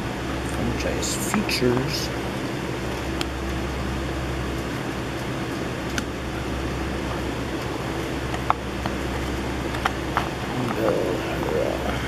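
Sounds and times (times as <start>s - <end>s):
steady low hum: 0.0s - 12.0s
trading cards clicking and snapping: 9.7s - 10.8s.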